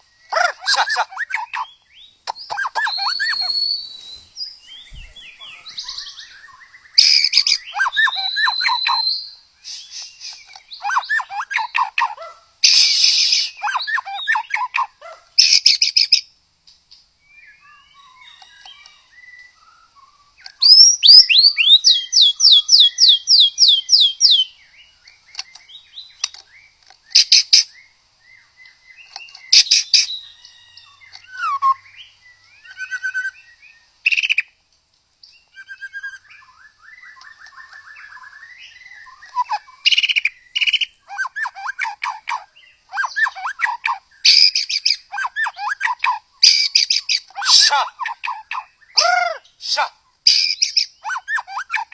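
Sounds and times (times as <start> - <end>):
bird singing whistled phrases: 0.0 - 11.9, 17.3 - 24.6, 29.0 - 34.5, 35.4 - 49.5.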